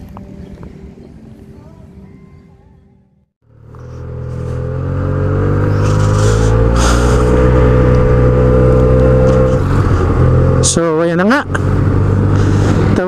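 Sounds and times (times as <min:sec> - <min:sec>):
scooter engine running: 0:03.4 - 0:13.0.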